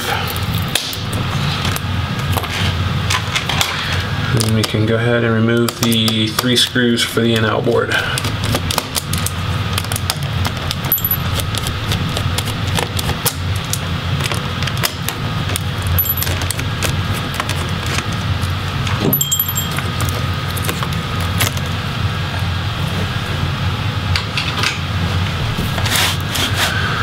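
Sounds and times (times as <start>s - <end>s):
steady low hum: 7.6s - 27.0s.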